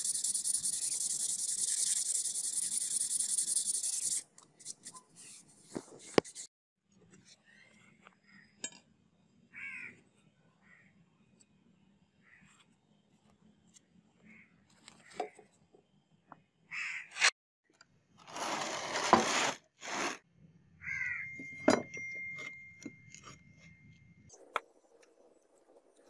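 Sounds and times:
crows cawing: 9.5 - 10.0, 16.7 - 17.1, 20.8 - 21.3.

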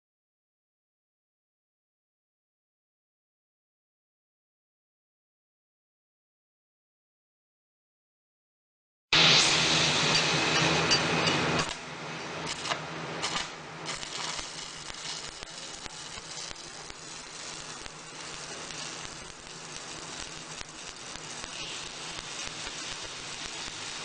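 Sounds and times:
welding arc crackling and sizzling: 9.2 - 24.0.

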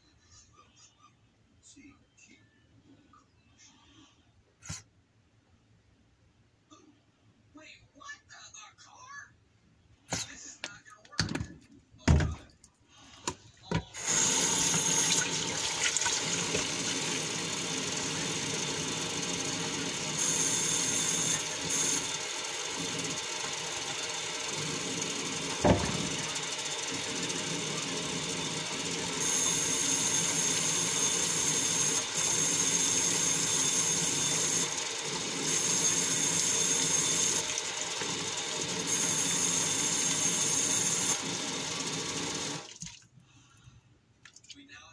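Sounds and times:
tap water running into a pot: 14.0 - 31.6, 34.1 - 43.0.

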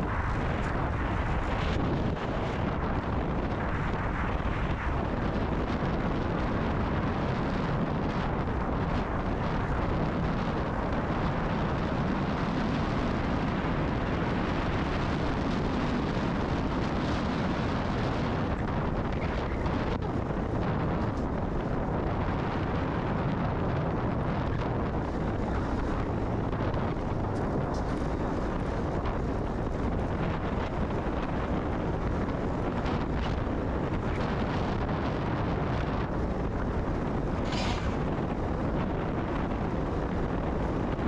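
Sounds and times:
wind buffeting microphone: 0.0 - 41.0
tyre noise: 22.4 - 38.5.

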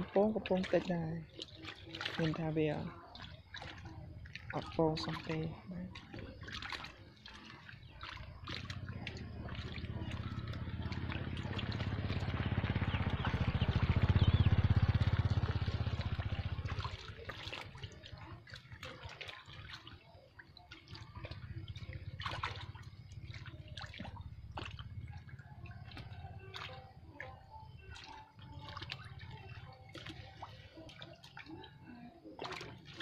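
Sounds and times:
water splashing and dripping: 0.0 - 33.0
rushing rumble: 9.2 - 16.8.

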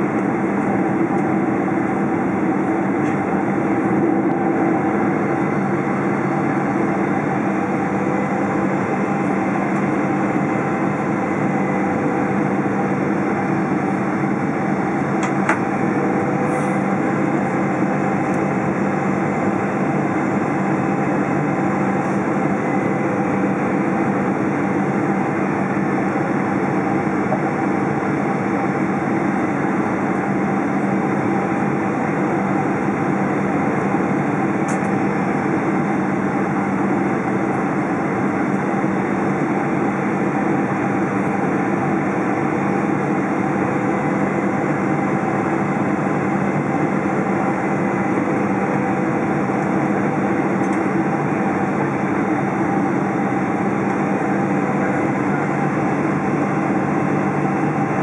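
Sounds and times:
turbofan engines humming: 0.0 - 58.0.

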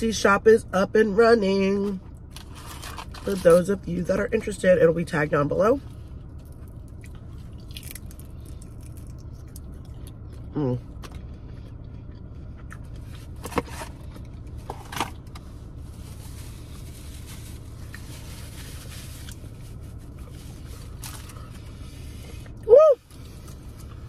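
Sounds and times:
low hum: 0.0 - 24.0
person chewing: 6.3 - 13.4.

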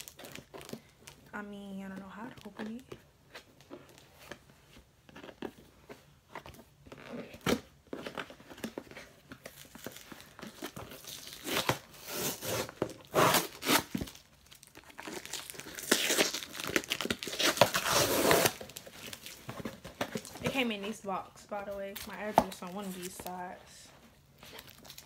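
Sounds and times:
package being torn open: 9.5 - 19.4.

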